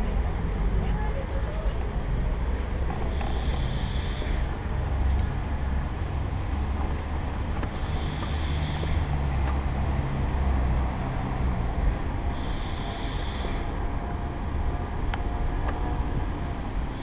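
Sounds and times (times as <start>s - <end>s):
vehicle rumbling on tarmac: 0.0s - 17.0s
high-pitched whines: 3.0s - 4.5s, 7.7s - 9.1s, 12.3s - 13.8s.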